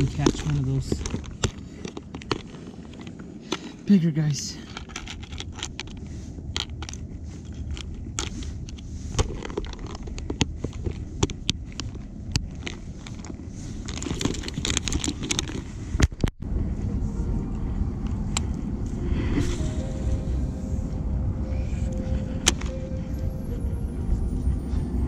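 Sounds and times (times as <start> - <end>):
plastic tackle box clicking and rattling: 0.0 - 3.8, 4.7 - 8.4, 9.2 - 15.7
backpack rustling: 0.0 - 3.9, 4.7 - 16.0.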